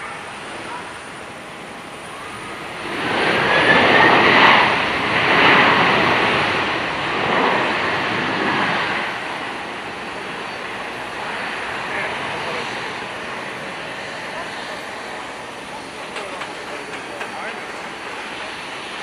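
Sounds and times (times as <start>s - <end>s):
jet engines reverse thrust roar: 0.0s - 19.0s.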